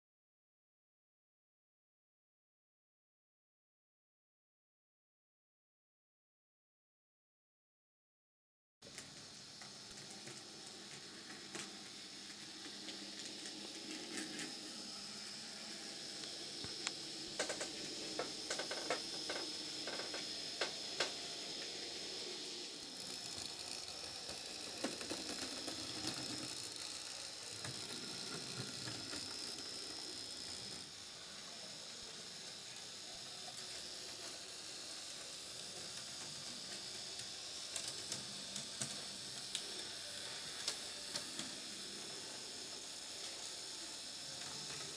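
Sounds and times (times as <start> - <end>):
small electric motor whirring: 8.8 - 44.9
wheels clicking over track: 23.0 - 30.8.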